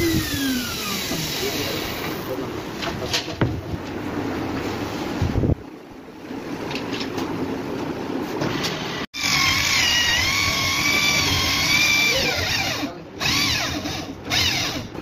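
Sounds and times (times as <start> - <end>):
electric drill whining: 0.0 - 2.2, 9.2 - 14.9.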